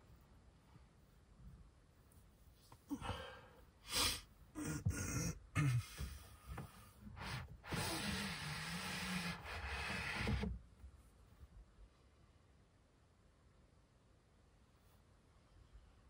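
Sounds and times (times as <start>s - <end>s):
man breathing and snorting: 2.8s - 8.6s.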